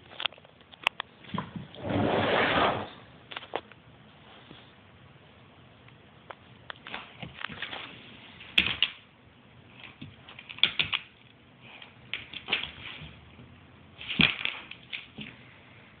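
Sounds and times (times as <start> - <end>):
dog claws clicking on wooden floor: 6.7 - 9.0, 9.7 - 13.2, 14.0 - 15.4.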